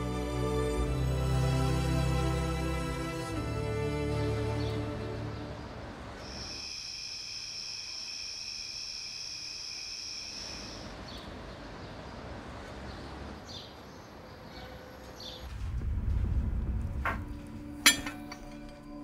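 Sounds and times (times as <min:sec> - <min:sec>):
high insect trill: 0:06.2 - 0:10.9.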